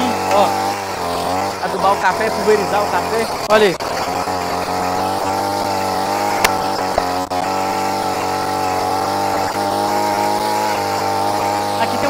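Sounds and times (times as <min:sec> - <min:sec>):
small engine running: 0:00.0 - 0:12.0.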